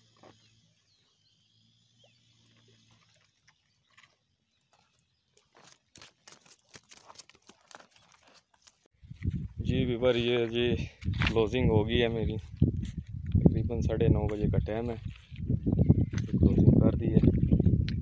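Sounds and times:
footsteps on pebbles: 4.7 - 9.5.

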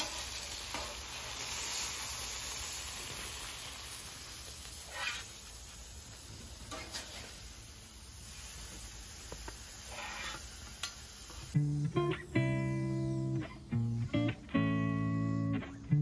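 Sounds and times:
meat sizzling on a griddle: 0.0 - 11.6
metal spatula scraping: 4.7 - 5.4, 6.6 - 7.4, 9.8 - 10.6.

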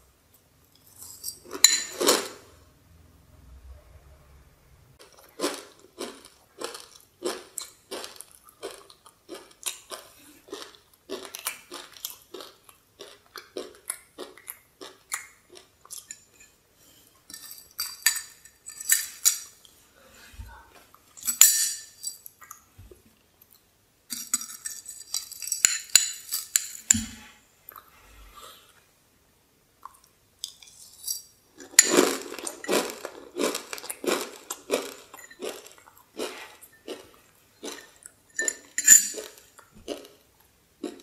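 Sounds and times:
spoon clinking and scraping glass: 0.8 - 2.4, 15.9 - 16.6, 17.3 - 19.6, 21.2 - 22.3, 24.1 - 27.2, 30.5 - 33.1, 34.8 - 35.8, 37.7 - 39.5.

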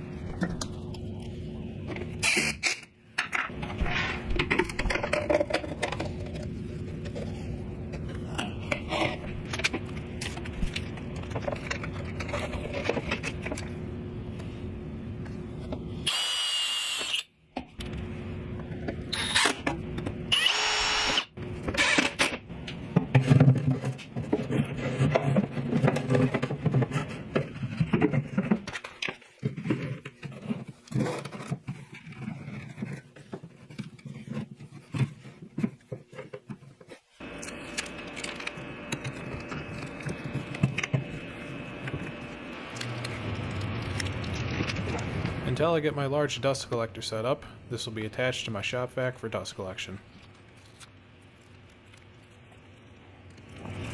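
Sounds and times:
cordless drill whining into metal: 16.1 - 17.3, 19.1 - 19.6, 20.3 - 22.0.

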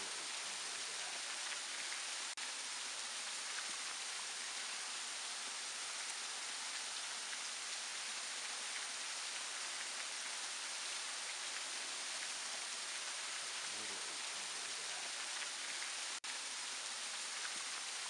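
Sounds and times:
waterfall splashing: 0.0 - 18.0.

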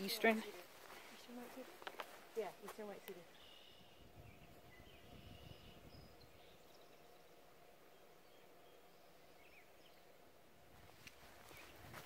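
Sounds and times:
faint bird chirps: 3.1 - 10.2.

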